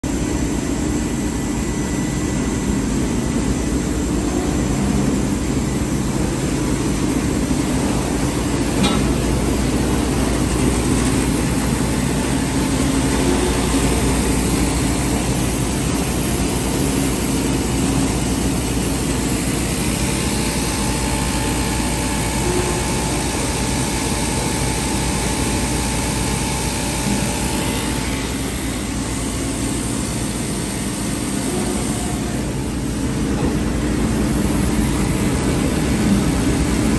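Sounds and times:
sewing machine humming: 11.2s - 32.7s.

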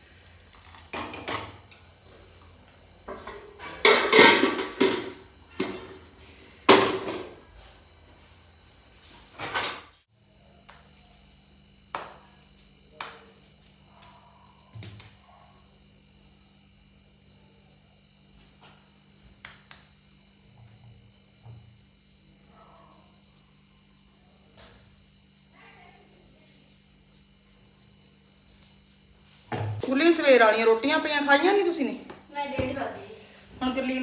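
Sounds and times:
pots and lids clanking: 0.9s - 2.0s, 3.1s - 6.1s, 6.7s - 7.4s.

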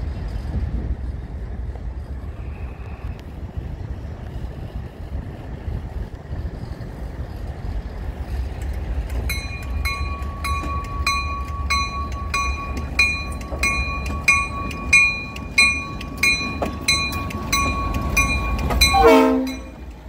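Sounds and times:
diesel locomotive rumbling: 0.0s - 20.0s
bell ringing: 9.3s - 19.8s.

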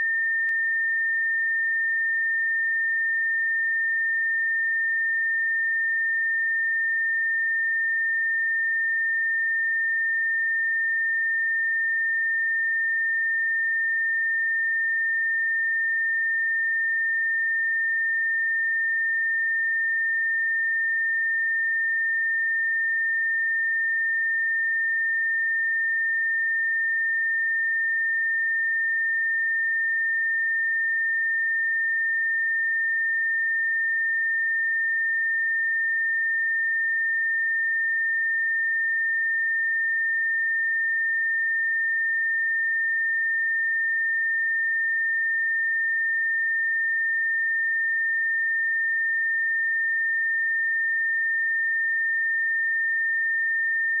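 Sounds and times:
high-pitched sine test tone: 0.0s - 54.0s.

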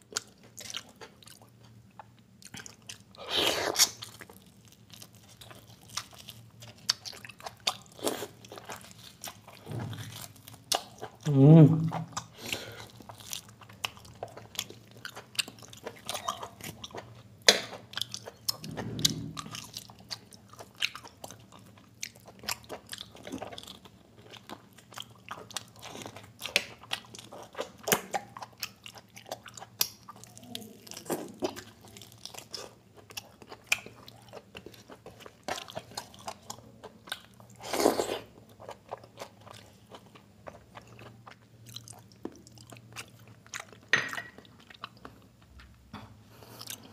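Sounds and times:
chewing and mouth smacks: 0.1s - 3.1s, 12.9s - 45.5s.

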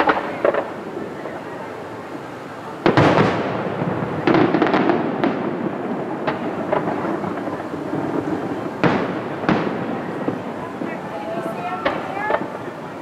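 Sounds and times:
firework cracks: 0.0s - 13.0s
distant firework booms: 2.8s - 13.0s.

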